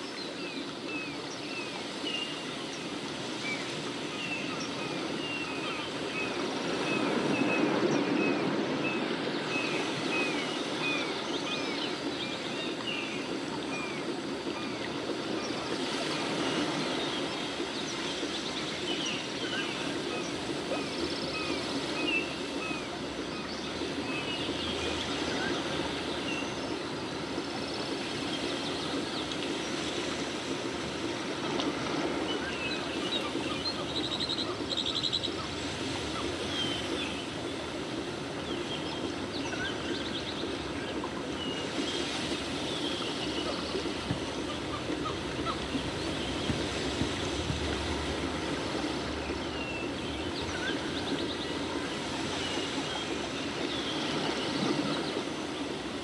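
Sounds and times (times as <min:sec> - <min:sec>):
running water: 0:00.0 - 0:56.0
birds chirping: 0:31.9 - 0:56.0.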